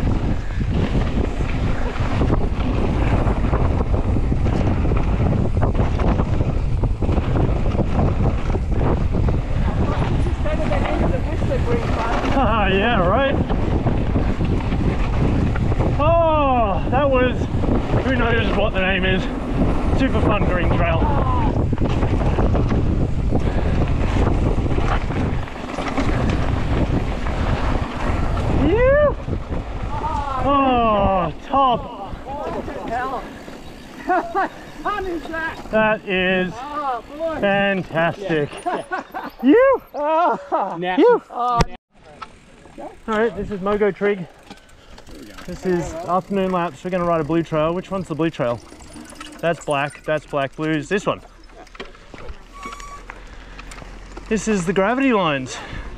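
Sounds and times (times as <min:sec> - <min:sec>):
bike rattling and knocking: 0:00.0 - 0:39.4, 0:42.1 - 0:55.9
tyres rumbling over dirt: 0:00.0 - 0:39.4, 0:42.0 - 0:55.9
wind buffeting microphone: 0:00.0 - 0:39.8, 0:42.4 - 0:55.9
bike clicks and knocks: 0:21.6 - 0:28.5, 0:41.6 - 0:55.0.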